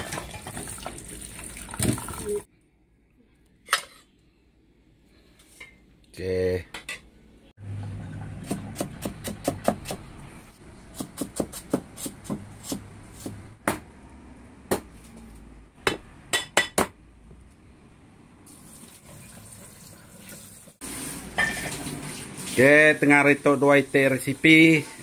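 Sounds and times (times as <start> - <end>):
knife chopping on a board: 8.4 - 10.0, 10.9 - 13.8.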